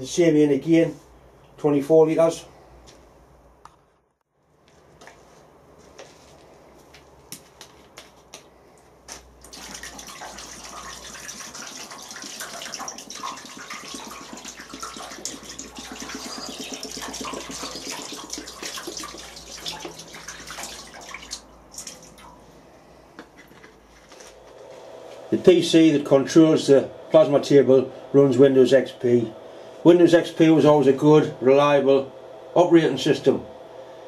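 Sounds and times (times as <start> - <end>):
water pouring and splashing: 9.4 - 22.4.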